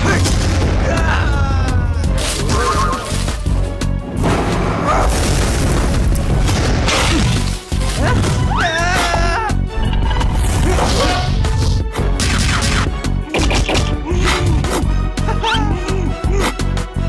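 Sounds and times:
heavy booms and impacts: 0:00.0 - 0:01.5, 0:04.0 - 0:07.5
loud background music: 0:00.0 - 0:17.0.

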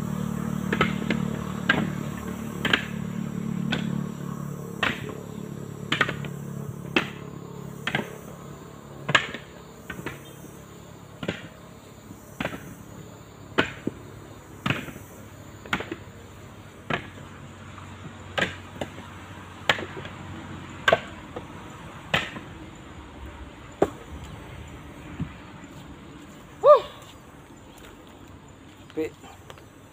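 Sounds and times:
coconuts knocking onto a pile: 0:22.1 - 0:22.5.

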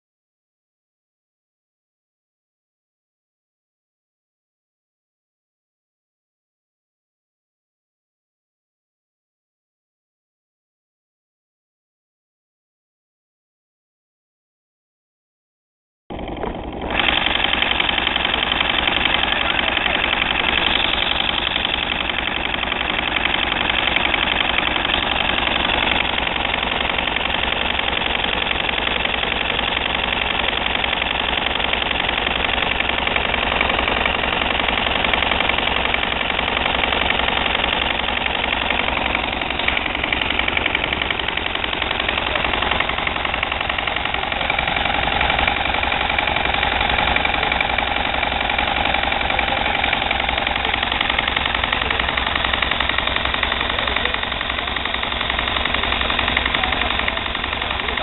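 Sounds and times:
stationary engine running: 0:16.1 - 0:58.0.

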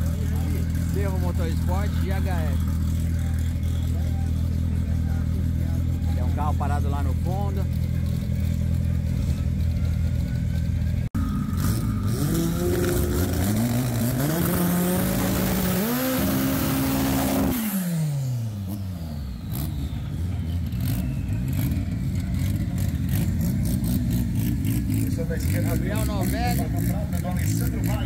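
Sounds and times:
racing car engine accelerating: 0:11.2 - 0:28.0.

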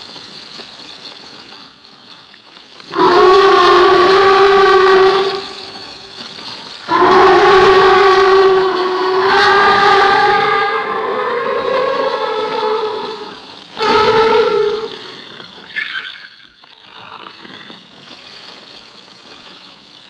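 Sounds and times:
alligator roar: 0:02.9 - 0:06.1, 0:06.9 - 0:15.3.

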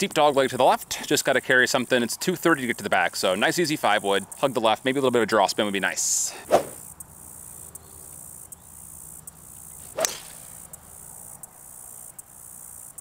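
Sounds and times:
insects chirping: 0:00.0 - 0:13.0
golf club striking ball: 0:09.4 - 0:11.0.

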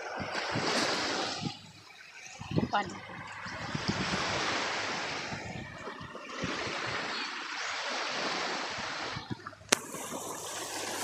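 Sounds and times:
small waves washing on sand: 0:00.0 - 0:11.0.

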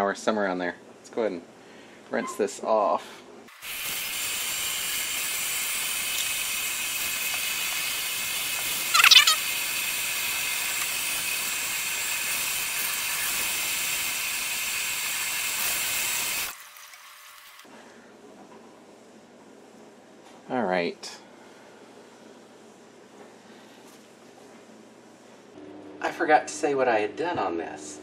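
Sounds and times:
faucet running into steel sink: 0:03.6 - 0:17.6.

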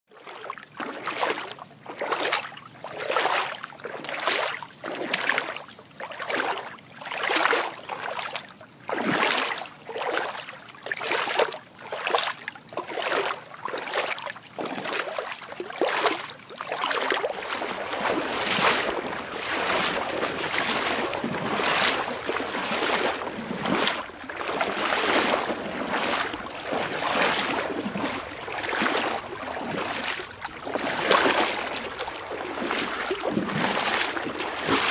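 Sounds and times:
water washing in swells: 0:11.0 - 0:34.9.

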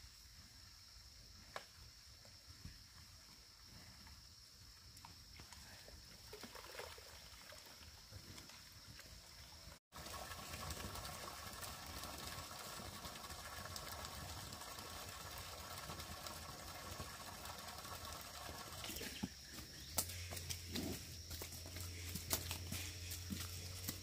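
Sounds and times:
hum of wildlife: 0:00.0 - 0:24.0
footsteps on dirt path: 0:19.0 - 0:24.0.

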